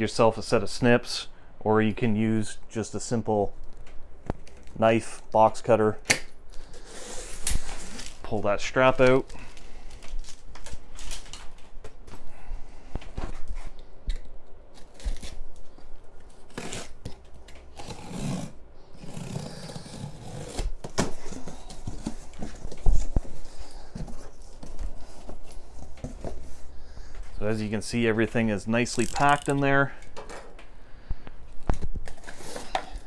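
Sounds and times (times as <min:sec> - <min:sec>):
packing tape tearing: 0:06.5 - 0:08.3, 0:14.1 - 0:15.5, 0:16.3 - 0:22.6, 0:28.9 - 0:29.6.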